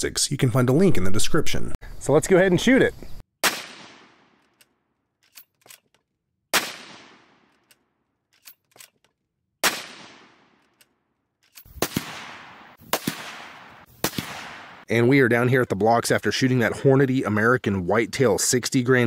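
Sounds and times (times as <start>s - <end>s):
rifle shots echoing: 3.4s - 4.4s, 6.5s - 7.6s, 9.6s - 10.6s, 11.7s - 14.9s
rifle bolt clicks: 4.4s - 6.1s, 7.4s - 9.2s, 10.5s - 11.8s.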